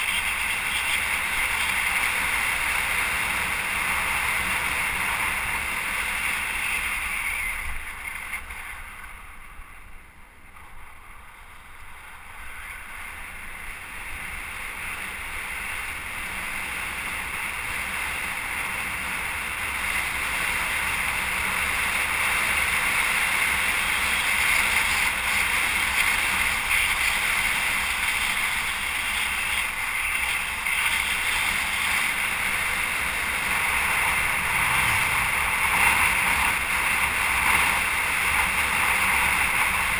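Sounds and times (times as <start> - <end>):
road noise: 0.0 - 39.9
wind rushing over microphone: 29.2 - 39.9.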